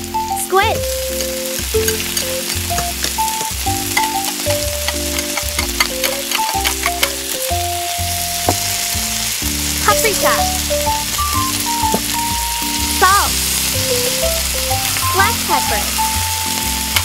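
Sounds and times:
background music: 0.0s - 17.0s
hot oil sizzling and crackling: 0.0s - 17.0s
utensil stirring in wok: 1.2s - 8.2s.

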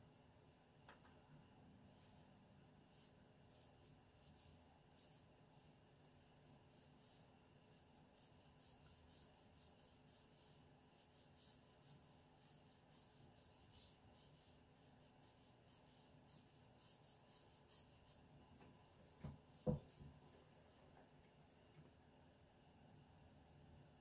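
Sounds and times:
brush strokes on paper: 1.8s - 20.9s.

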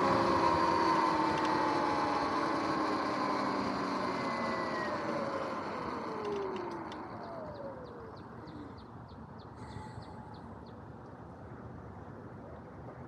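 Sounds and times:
electric motor whine: 0.0s - 8.7s
low road hum: 0.0s - 13.0s.

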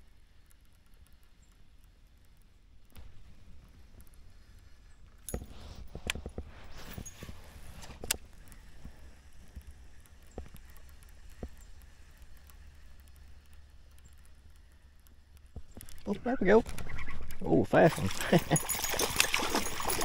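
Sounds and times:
fishing gear clicks and knocks: 5.2s - 20.0s.

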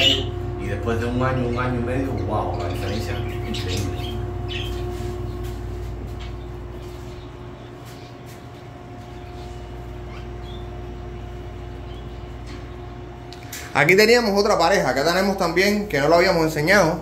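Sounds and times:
budgerigar chirps: 0.0s - 0.3s
machine hum: 0.0s - 17.0s.

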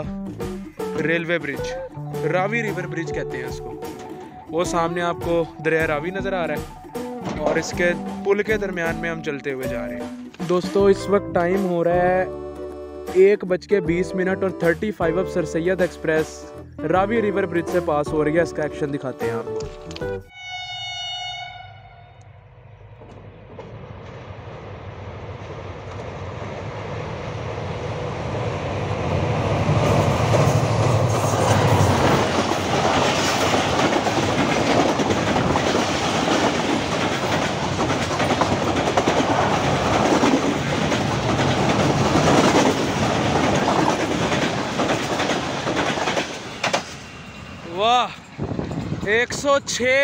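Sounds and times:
train coaches rattling: 0.9s - 10.7s, 28.3s - 50.0s
diesel locomotive rumble: 22.2s - 50.0s
wheels clattering over rails: 29.7s - 47.2s.

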